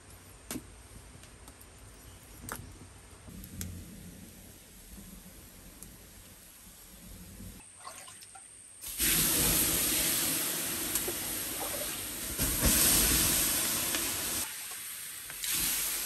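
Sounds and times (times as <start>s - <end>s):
water sizzling on hot charcoal: 8.8s - 16.0s.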